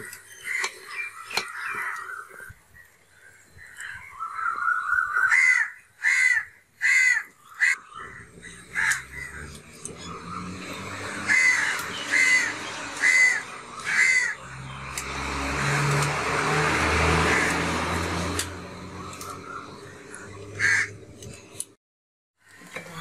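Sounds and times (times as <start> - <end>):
crows cawing: 0.0 - 2.5, 4.2 - 14.8, 16.5 - 17.8, 18.9 - 21.1
low rushing hum: 7.8 - 21.6.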